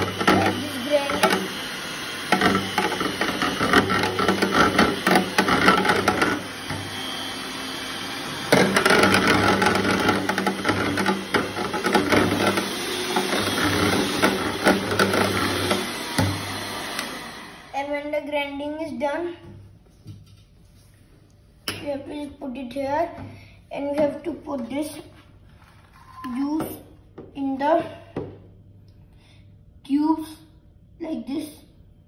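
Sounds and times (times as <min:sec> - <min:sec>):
electric hand mixer running: 0:00.0 - 0:17.9.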